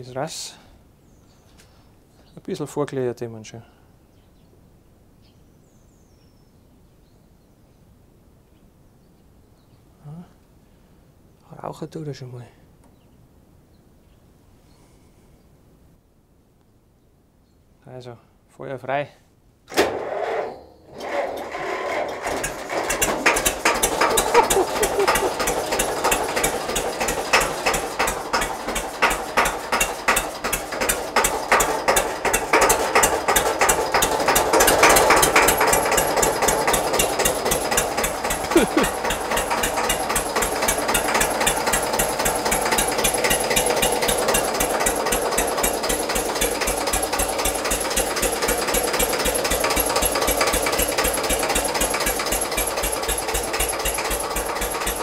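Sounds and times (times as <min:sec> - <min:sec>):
diesel tractor engine starting and idling: 0:19.7 - 0:55.0.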